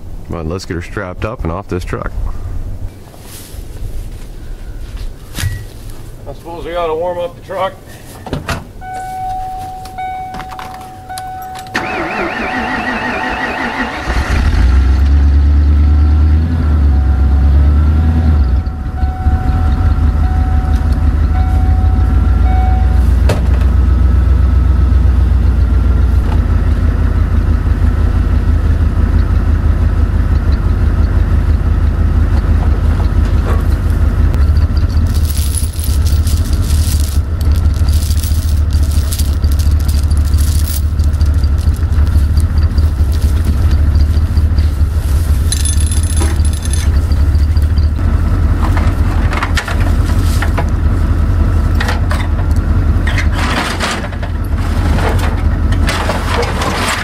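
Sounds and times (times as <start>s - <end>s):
pickup engine idling: 16.7s - 53.1s
metal chain clinking and rattling: 34.4s - 44.4s, 45.3s - 48.0s.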